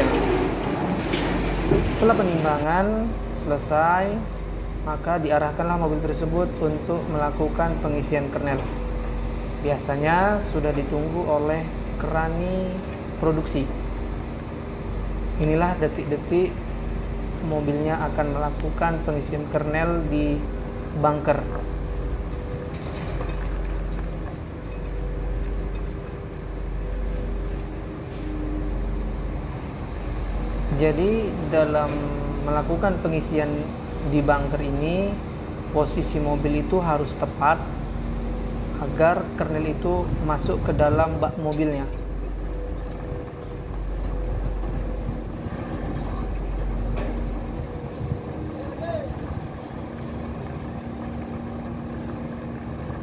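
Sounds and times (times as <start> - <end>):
dump truck engine running: 0.0 - 53.0.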